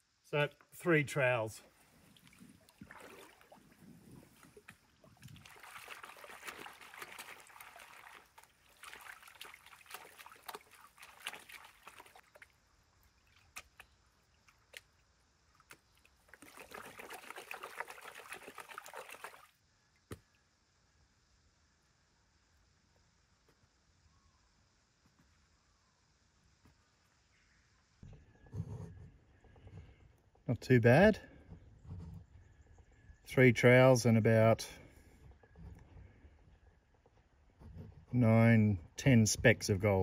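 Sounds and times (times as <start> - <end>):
water sloshing in a pan: 1.8 - 13.8, 16.1 - 19.4
small ticks: 7.0 - 16.6.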